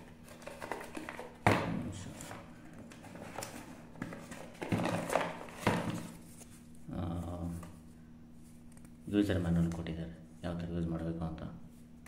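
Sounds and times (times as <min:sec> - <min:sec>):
card and paper rustling: 0:00.0 - 0:01.5, 0:02.1 - 0:06.7.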